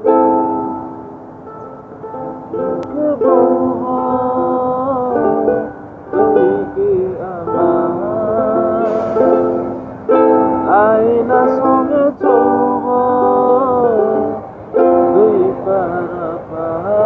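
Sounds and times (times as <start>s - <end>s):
ukulele accompaniment: 0.0s - 17.0s
man singing: 2.6s - 9.8s, 10.6s - 17.0s.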